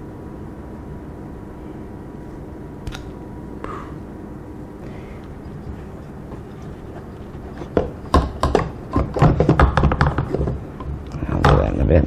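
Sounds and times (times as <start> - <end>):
handling knocks and clunks: 6.3 - 11.7.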